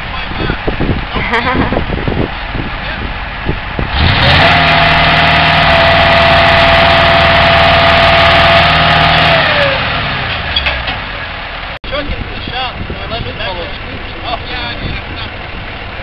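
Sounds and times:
vehicle engine revving: 2.1 - 11.8.

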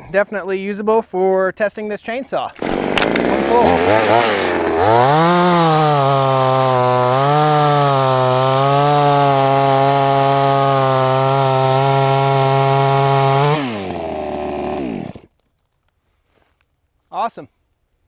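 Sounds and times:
chainsaw cutting log: 2.6 - 15.3.

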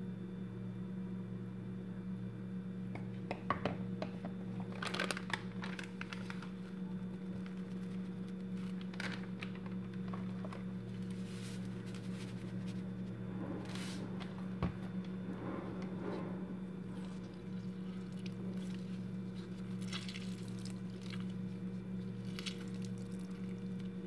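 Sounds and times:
steady low hum: 0.0 - 24.0
plastic crinkling and rustling: 4.5 - 12.6.

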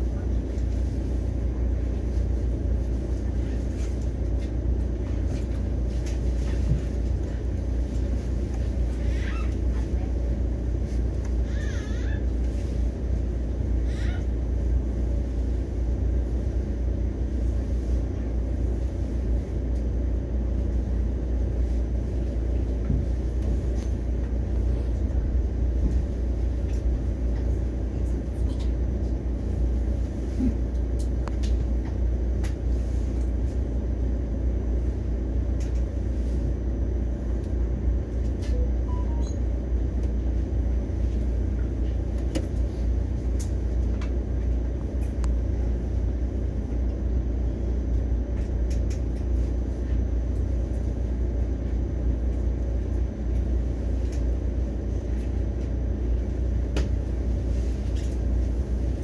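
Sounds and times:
train rumbling: 0.0 - 59.0.

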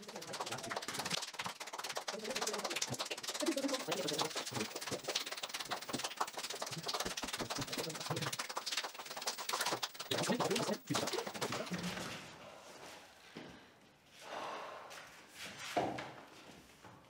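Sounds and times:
children hand-clapping: 0.0 - 12.0.

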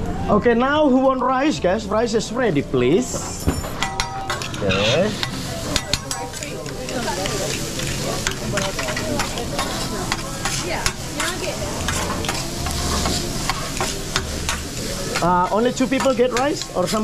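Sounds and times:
food sizzling on griddle: 1.5 - 17.0
metal spatulas scraping: 3.2 - 17.0.

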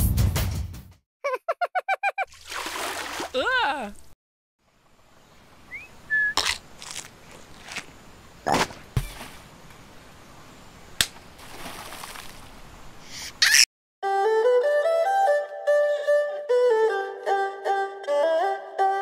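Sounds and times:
rising whistle-like chirp: 5.7 - 6.4.

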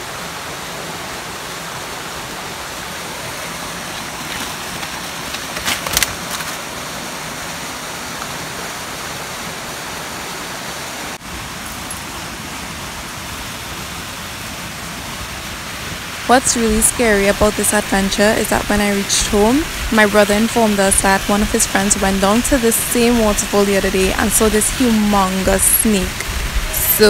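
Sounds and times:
running water rushing: 0.0 - 27.0.

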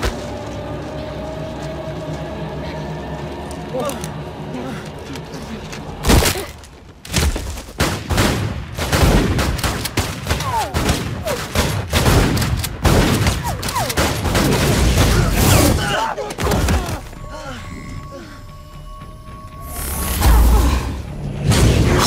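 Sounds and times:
gunfire and explosions: 5.3 - 18.0, 19.4 - 22.0.

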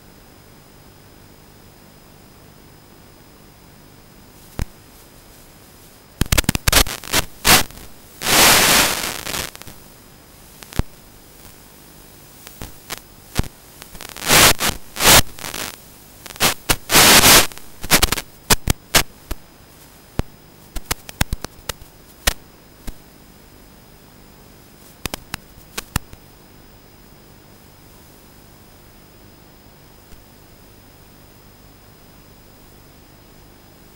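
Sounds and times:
faint high whine: 0.0 - 33.9
steady hiss: 3.4 - 31.1
crackling static and scraping: 4.3 - 23.1, 24.6 - 26.3
sharp clicks: 6.2 - 9.8, 20.8 - 23.0, 25.0 - 26.2.

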